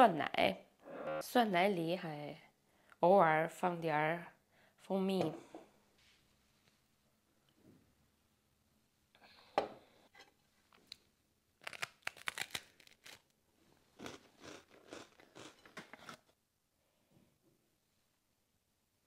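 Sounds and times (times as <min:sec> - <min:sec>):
crunchy biting and chewing: 0:11.6 - 0:13.2, 0:14.0 - 0:16.3.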